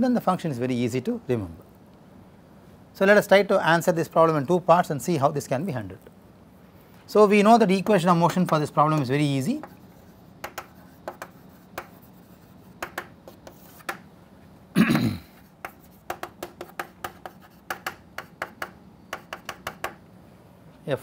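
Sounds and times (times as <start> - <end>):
chalk tapping and scratching on blackboard: 7.8 - 14.1, 15.4 - 20.0.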